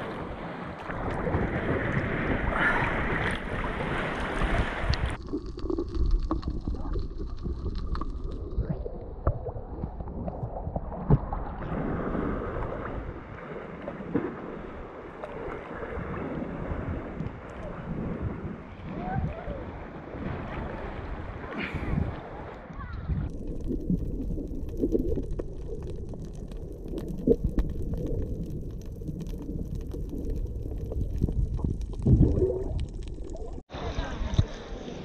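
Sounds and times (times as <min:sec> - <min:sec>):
sea water splashing: 0:00.0 - 0:35.0
wind on microphone: 0:15.7 - 0:23.3.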